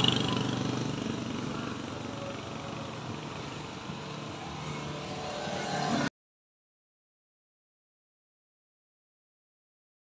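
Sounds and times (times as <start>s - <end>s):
motorcycle engine climbing hill: 0.0s - 6.1s.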